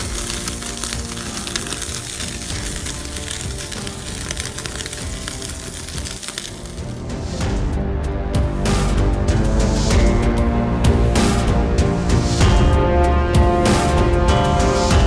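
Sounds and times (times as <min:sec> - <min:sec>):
meat sizzling on a grill: 0:00.0 - 0:07.0
background music: 0:00.0 - 0:15.0.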